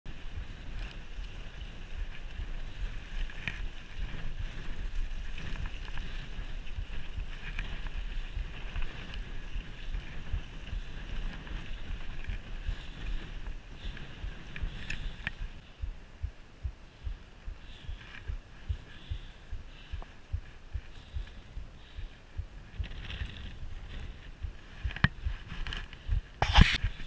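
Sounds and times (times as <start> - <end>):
wind buffeting microphone: 0.1 - 27.0
bike clicks and rattles: 0.6 - 15.6, 22.7 - 26.8.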